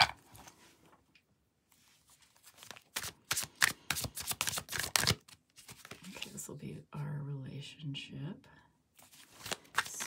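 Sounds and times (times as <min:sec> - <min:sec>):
cards snapping and clicking: 0:02.6 - 0:05.9.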